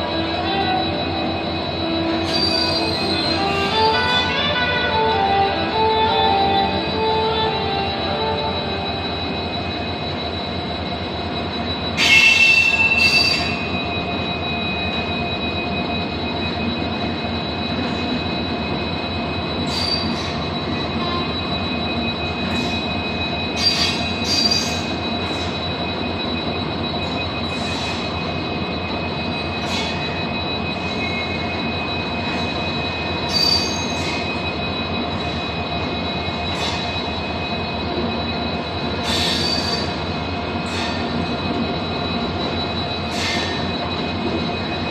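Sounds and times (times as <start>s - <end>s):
train wheels rumbling on rail: 0.0s - 44.9s
thin wheel squeal: 2.1s - 3.8s, 12.0s - 13.8s, 19.6s - 20.4s, 22.4s - 25.6s, 29.3s - 31.4s, 32.2s - 34.5s, 36.4s - 37.1s, 39.0s - 41.1s, 42.4s - 44.0s.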